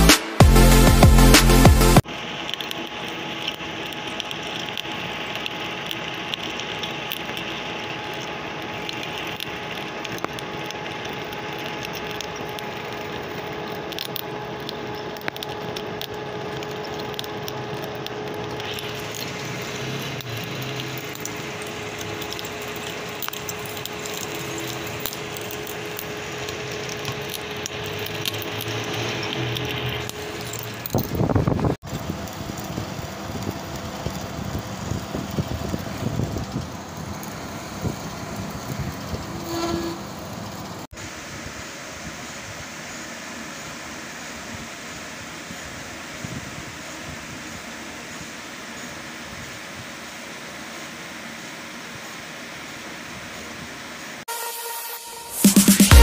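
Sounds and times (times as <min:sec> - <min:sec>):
intro music: 0:00.0 - 0:02.0, 0:54.3 - 0:56.0.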